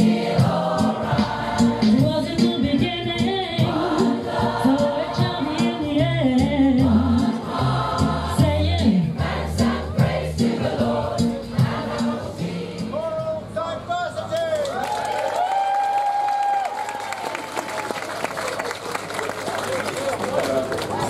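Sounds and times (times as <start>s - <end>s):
choir singing: 0.0s - 2.3s, 3.5s - 5.8s, 6.7s - 12.9s
bass line: 0.0s - 12.2s.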